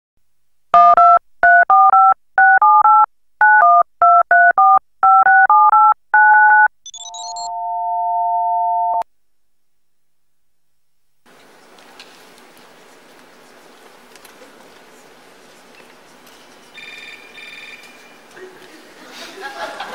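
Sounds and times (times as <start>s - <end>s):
touch-tone keypad beeps: 0.8s - 7.5s
two-note phone line tone: 0.8s - 9.0s.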